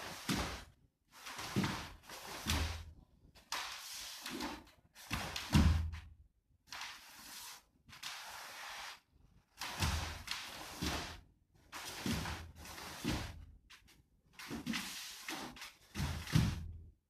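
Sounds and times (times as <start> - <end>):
bare feet thudding on wooden floor: 5.1 - 6.1, 9.6 - 11.2, 11.8 - 13.4, 14.4 - 16.9.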